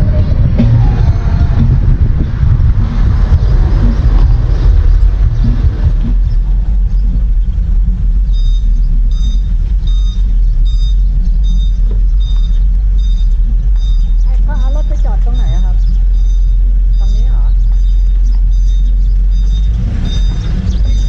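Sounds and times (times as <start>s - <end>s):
vehicle driving on road: 0.0s - 21.0s.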